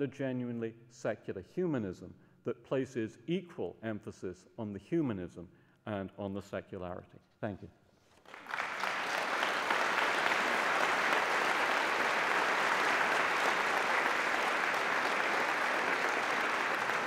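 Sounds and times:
audience applauding: 8.2s - 17.0s.

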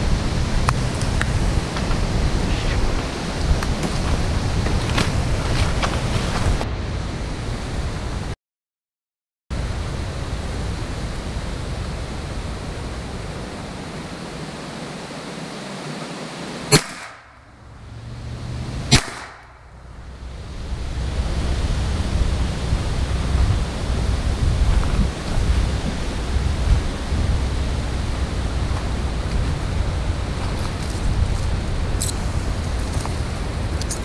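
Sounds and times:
wind noise on microphone: 0.0s - 8.4s, 19.9s - 34.0s
gunshots: 16.7s - 17.5s, 18.9s - 19.7s.

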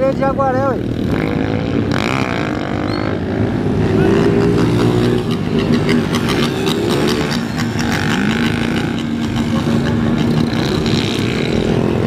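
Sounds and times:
motorcycle engines revving passing: 0.0s - 12.0s.

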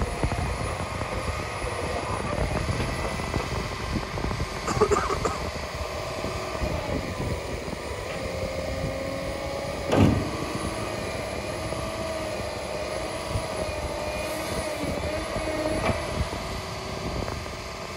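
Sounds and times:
diesel engine and hydraulics: 0.0s - 17.9s
wavering hydraulic whine: 0.0s - 17.9s
loud clunk: 9.8s - 10.5s.

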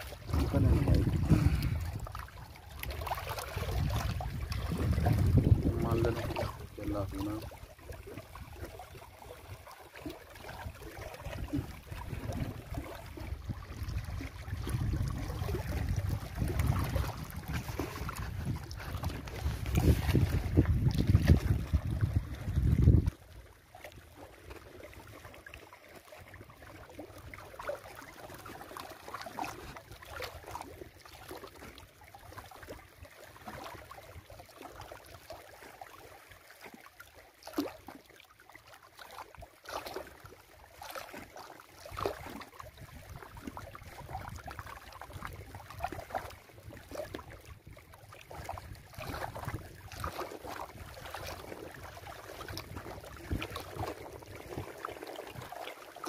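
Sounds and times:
water lapping against rocks: 0.0s - 56.0s.

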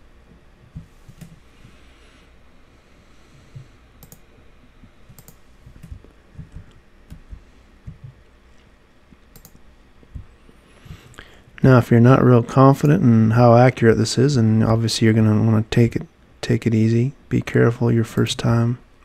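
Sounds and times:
computer mouse clicks: 0.8s - 1.4s, 4.0s - 4.2s, 5.1s - 8.2s, 9.3s - 9.6s.

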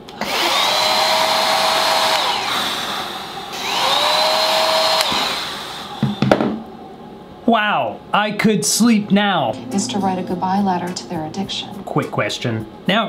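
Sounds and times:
hair dryer blowing: 0.0s - 6.4s.

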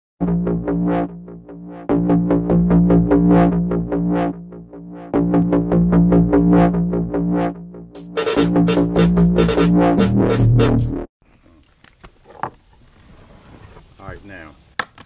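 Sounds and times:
steady bass: 0.2s - 11.1s
synthesizer repeated notes: 0.2s - 11.1s.

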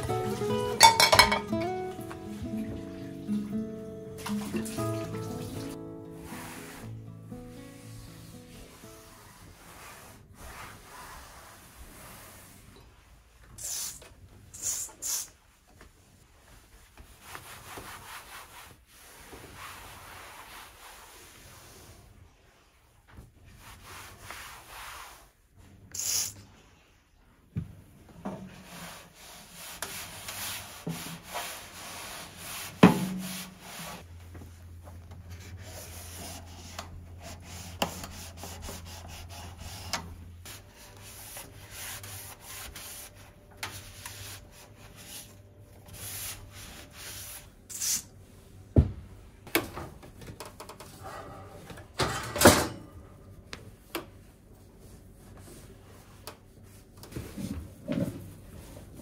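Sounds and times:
cloth rubbing on metal: 6.2s - 14.0s, 28.5s - 48.0s.

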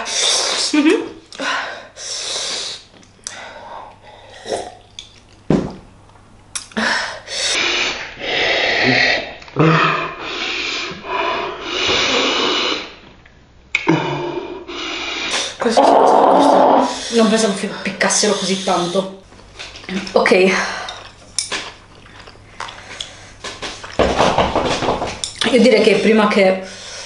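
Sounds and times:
person breathing hard through mouth: 6.8s - 13.0s, 13.9s - 15.6s.

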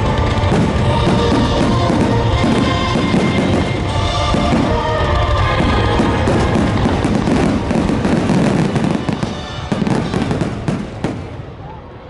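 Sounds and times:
fireworks bursting and crackling: 0.0s - 11.8s
music playing: 0.0s - 12.0s.

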